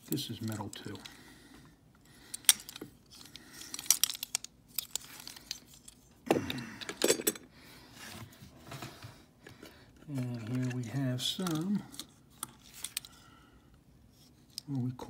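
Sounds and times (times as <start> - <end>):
toy truck clicks and rattles: 2.3 - 6.1.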